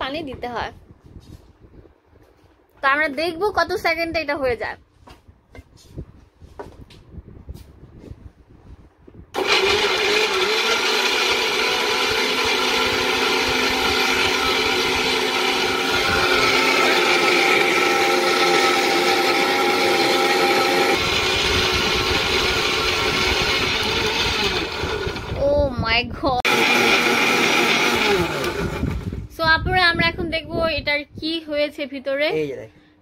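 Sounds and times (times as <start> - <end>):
mixer grinder motor running: 9.4 - 25.6, 26.4 - 29.3.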